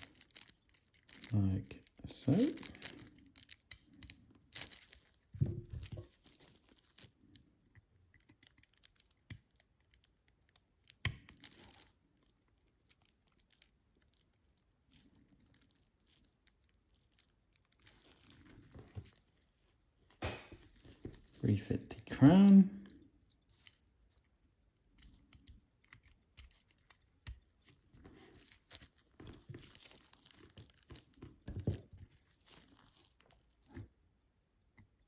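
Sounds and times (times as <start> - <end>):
small metal clicks and rustles: 0.0 - 35.0.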